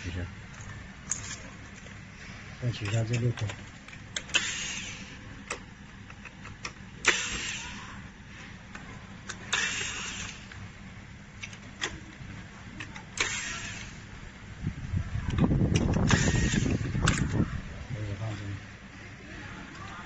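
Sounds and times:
short noisy bursts: 0:09.5 - 0:10.5, 0:13.2 - 0:14.2, 0:16.0 - 0:17.1.

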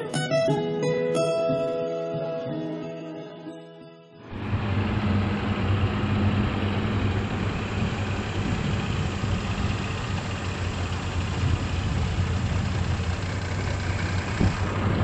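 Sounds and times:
diesel engine idling: 0:04.3 - 0:15.0.

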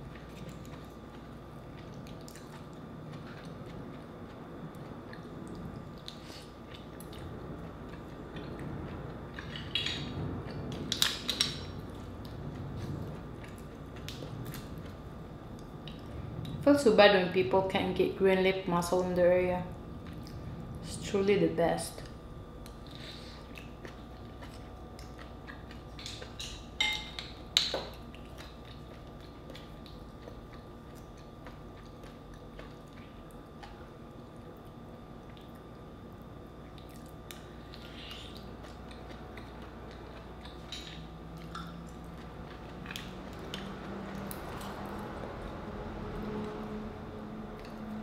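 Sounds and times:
person chewing: 0:00.0 - 0:16.6, 0:22.6 - 0:26.8, 0:27.6 - 0:33.9, 0:36.6 - 0:45.1
faint steady hum: 0:00.0 - 0:48.0.

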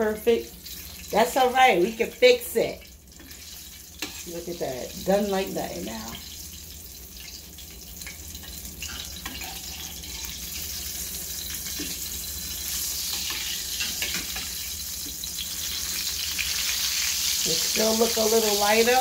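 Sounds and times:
fish frying in oil: 0:00.0 - 0:19.0
metal spatula scraping and tapping: 0:04.0 - 0:04.3, 0:08.0 - 0:10.0, 0:11.6 - 0:12.1, 0:13.1 - 0:15.2.

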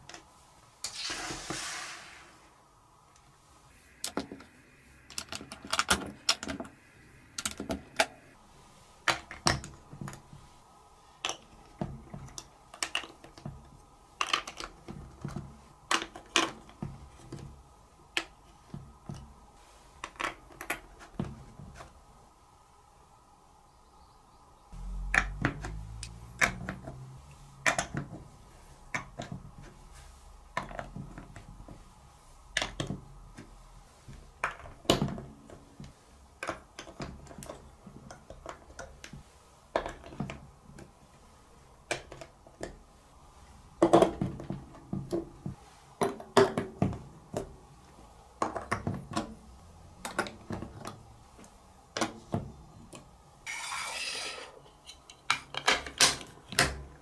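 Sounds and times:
plastic blocks clicking together: 0:14.2 - 0:14.8.

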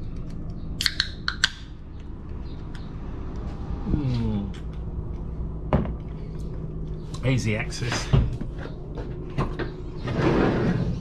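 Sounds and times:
steady low hum: 0:00.0 - 0:11.0
sharp clicks: 0:00.1 - 0:03.5
short falling vocal sound: 0:03.8 - 0:04.7.

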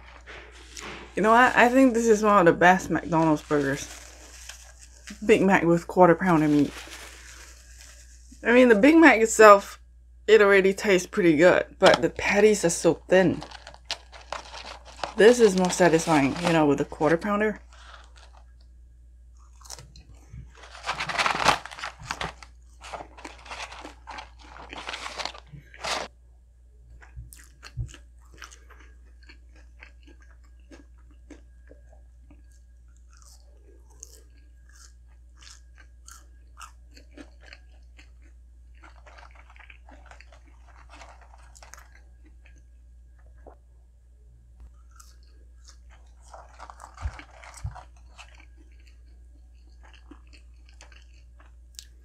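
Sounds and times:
person chewing burger: 0:13.4 - 0:15.2, 0:17.6 - 0:18.6, 0:19.4 - 0:26.1, 0:27.0 - 0:42.8, 0:44.7 - 0:52.0.

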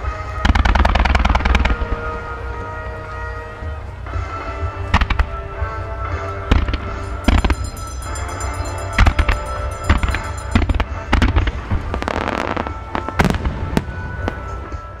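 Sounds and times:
music with steady tones: 0:00.0 - 0:15.0
fireworks bangs: 0:04.9 - 0:15.0.

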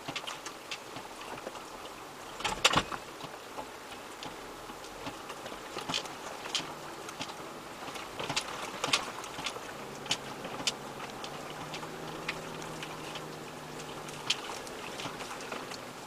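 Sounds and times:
stones clicking under tyres: 0:00.0 - 0:16.0
engine running at low revs: 0:04.4 - 0:16.0.

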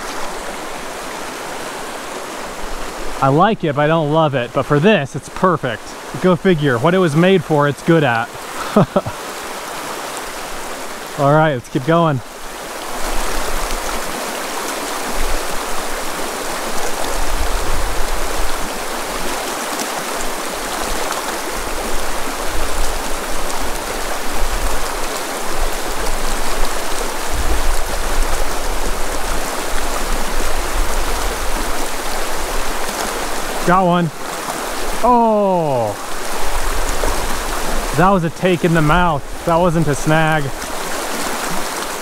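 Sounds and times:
creek rippling over rocks: 0:00.0 - 0:42.0.

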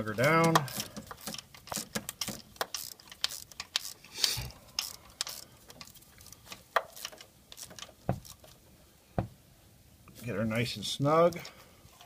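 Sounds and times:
hand ratchet clicking: 0:00.4 - 0:08.5.

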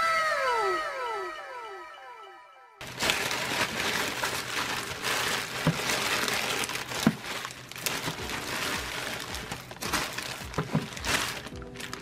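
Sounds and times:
plastic and bubble wrap crinkling: 0:02.8 - 0:12.0.

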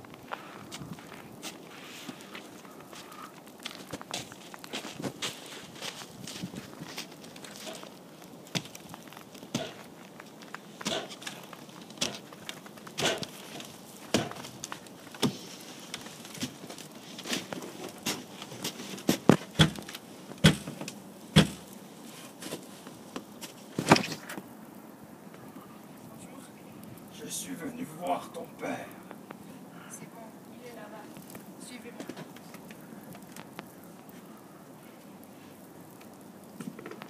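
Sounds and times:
footsteps in snow: 0:00.0 - 0:08.0
boots on wooden steps: 0:12.0 - 0:21.8.

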